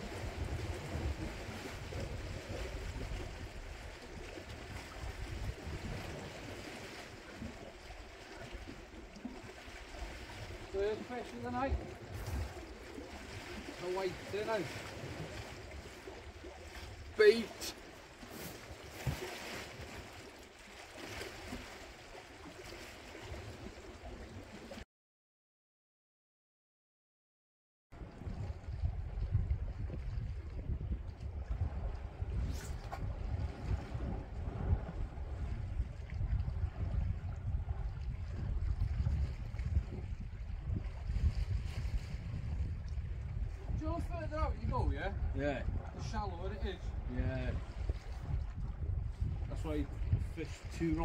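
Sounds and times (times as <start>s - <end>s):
sea washing against rocky shore: 0.0s - 24.8s
waves breaking on rocks: 10.2s - 16.2s
wind gusting on microphone: 10.4s - 13.0s, 28.0s - 51.0s.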